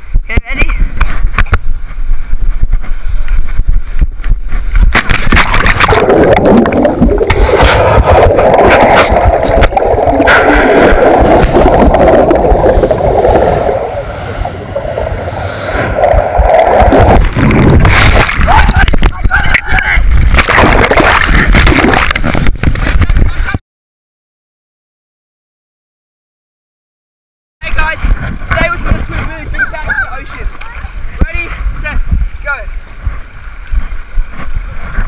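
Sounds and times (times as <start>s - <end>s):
low rumble: 0.8s - 23.4s
water rushing and bubbling: 4.8s - 23.4s.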